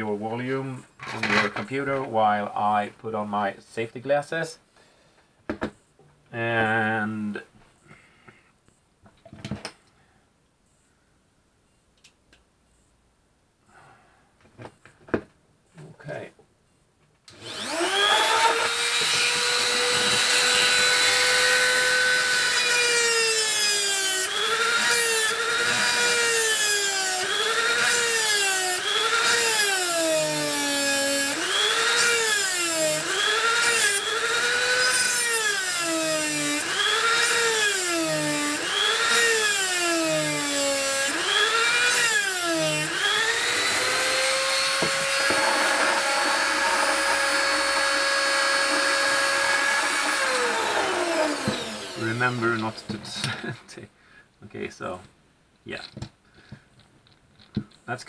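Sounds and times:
rotary tool cutting metal: 0:17.3 - 0:53.3.

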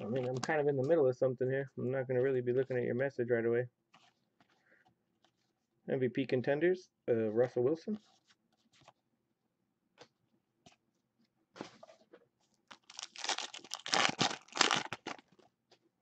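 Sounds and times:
foil wrapper crackling: 0:12.7 - 0:15.3.

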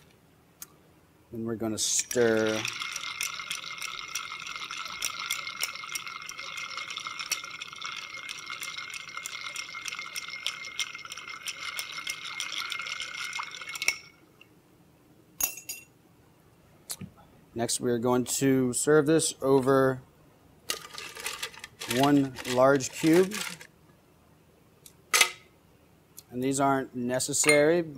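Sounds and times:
ice clinking against glass: 0:02.1 - 0:14.2
glass ringing tone: 0:02.5 - 0:14.2.

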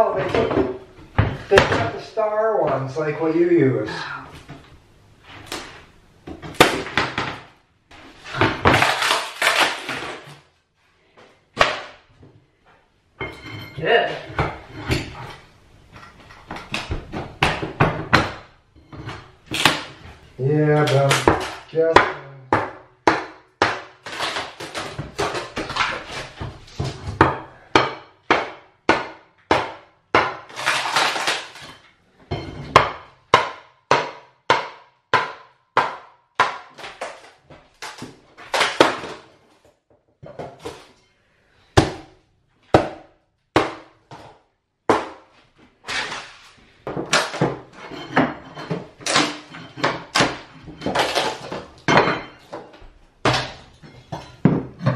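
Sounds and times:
hammer striking wood: 0:22.0 - 0:23.9, 0:27.2 - 0:30.4, 0:32.7 - 0:36.7.

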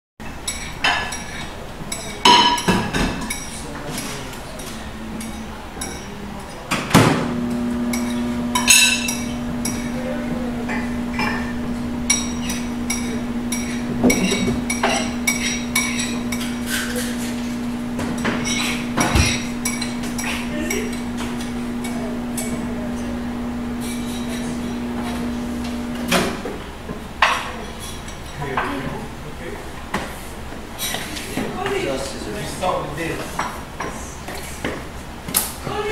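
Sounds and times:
dishes and utensils clinking: 0:00.3 - 0:10.0, 0:10.6 - 0:26.5
microwave oven humming: 0:00.3 - 0:35.9.

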